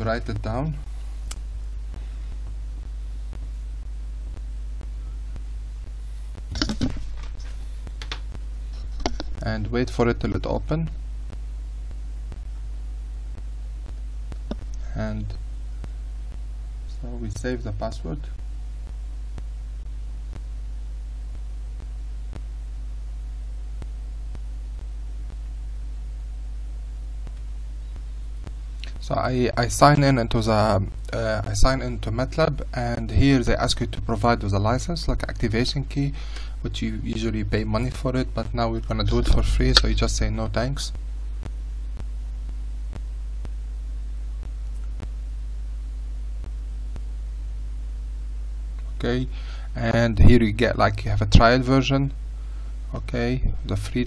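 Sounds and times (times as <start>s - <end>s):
low electrical hum: 0.0s - 54.0s
faint ticks: 27.2s - 29.1s.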